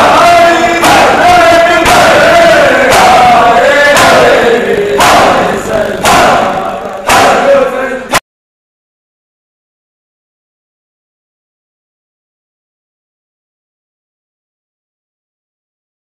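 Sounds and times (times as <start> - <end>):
men chanting: 0.0 - 8.2
hands striking chests: 0.8 - 7.6.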